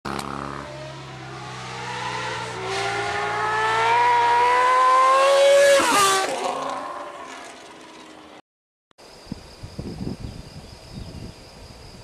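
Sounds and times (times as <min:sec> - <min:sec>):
motorcycle accelerating: 0:00.1 - 0:08.4.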